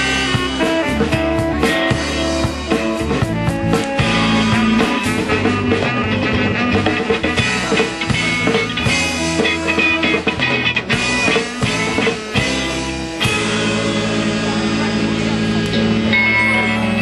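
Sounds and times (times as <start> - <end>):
rock band playing: 0.0 - 17.0.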